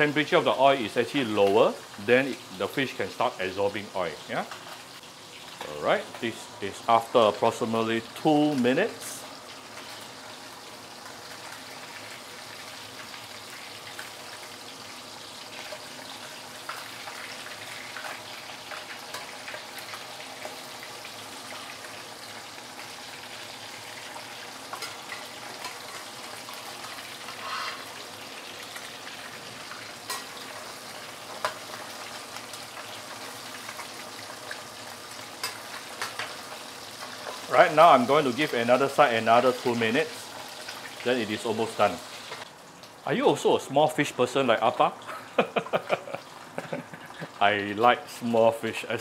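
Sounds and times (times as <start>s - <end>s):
fish deep-frying sizzle: 0.0s - 49.0s.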